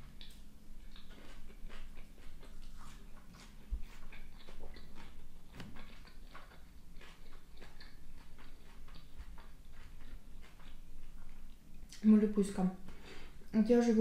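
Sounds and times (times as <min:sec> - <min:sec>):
chewing with wet mouth clicks: 0:00.0 - 0:12.1.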